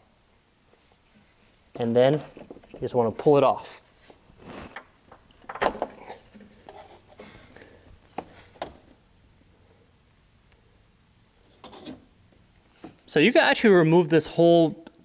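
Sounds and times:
hoses rustling: 0.7s - 5.4s.

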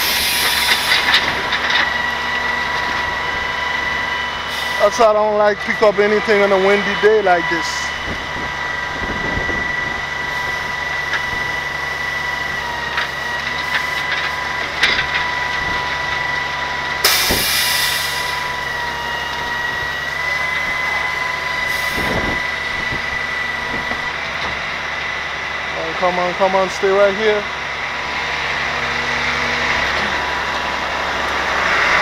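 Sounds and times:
hydraulic hiss: 0.0s - 1.2s, 17.0s - 18.5s
truck engine whining: 0.0s - 32.0s.

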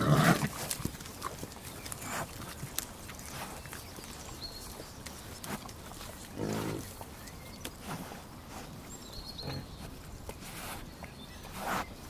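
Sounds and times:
pigs grunting: 0.0s - 3.9s, 5.1s - 7.2s, 9.4s - 10.8s
clicking chewing noises: 0.0s - 12.0s
pigs snuffling: 0.0s - 12.0s.

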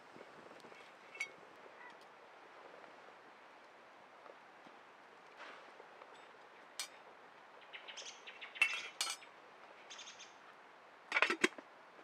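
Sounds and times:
rattle of objects: 11.1s - 11.6s.

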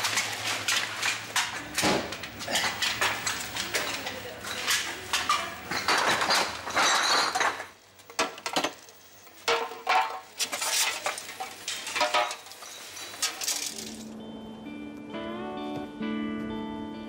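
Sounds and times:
empty bottles clinking: 4.4s - 8.7s, 9.4s - 14.1s
guitar music: 14.0s - 17.0s.

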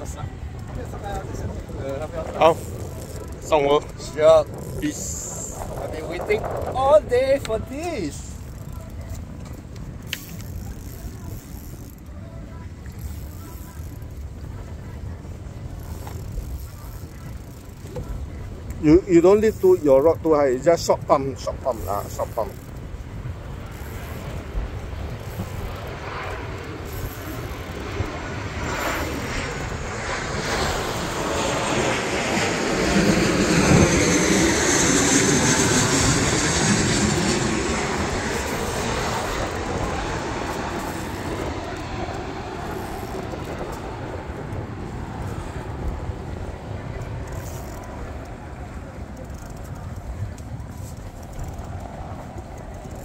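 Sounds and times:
airplane flying over: 0.0s - 53.0s.

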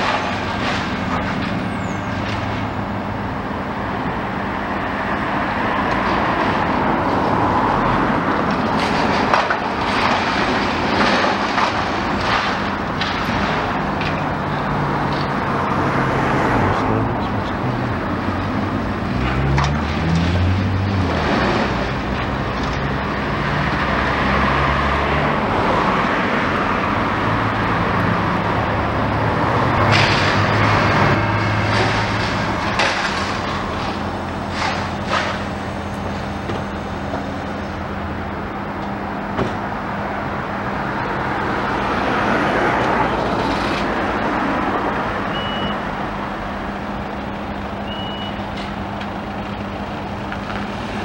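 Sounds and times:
falling debris: 0.0s - 2.8s, 8.4s - 15.5s, 29.7s - 36.5s
masonry crunching and clattering: 0.0s - 2.8s, 8.4s - 15.7s, 29.6s - 37.3s
excavator diesel engine: 0.0s - 51.0s.

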